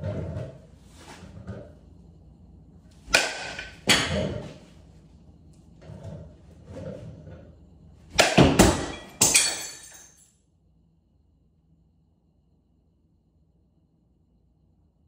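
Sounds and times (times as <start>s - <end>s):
ball hitting ceiling: 2.9s - 4.8s, 8.1s - 10.2s
bat cracking a ball: 3.1s - 4.4s, 8.2s - 8.9s
glass window breaking: 8.2s - 10.2s.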